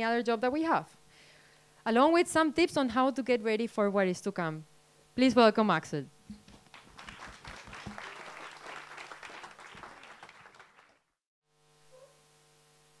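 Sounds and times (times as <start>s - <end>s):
faint steady hum: 0.0s - 10.8s, 11.5s - 13.0s
audience clapping: 6.4s - 11.2s.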